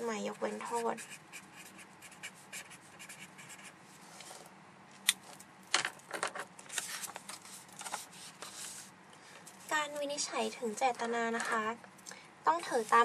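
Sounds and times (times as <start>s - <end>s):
marker scratching on paper: 0.2s - 4.4s
paper rustling: 6.7s - 8.8s.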